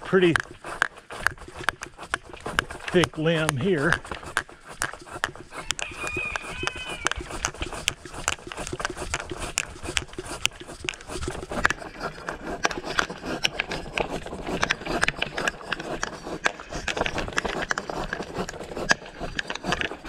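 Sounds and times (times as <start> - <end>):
saw rasping through wood: 0.0 - 20.0.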